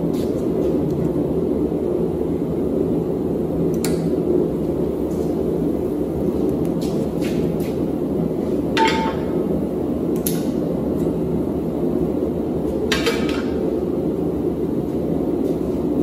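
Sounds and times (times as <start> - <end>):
steady rushing noise: 0.0 - 16.0
metal clanks: 8.8 - 9.4.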